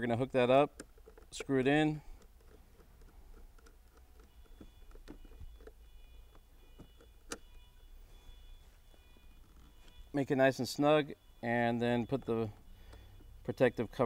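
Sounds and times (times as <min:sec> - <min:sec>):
screwdriver turning a screw: 0:00.8 - 0:01.4, 0:02.1 - 0:07.5.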